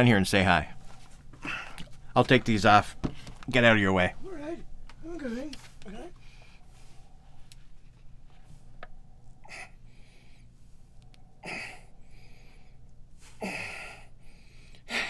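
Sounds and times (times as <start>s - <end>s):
low steady hum: 0.0s - 15.0s
person gasping: 1.4s - 1.9s, 11.4s - 15.0s.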